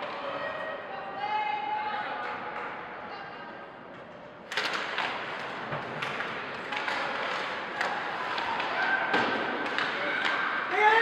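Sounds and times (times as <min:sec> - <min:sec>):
rink and crowd noise: 0:00.0 - 0:11.0
hockey sticks and puck clacking: 0:04.0 - 0:11.0.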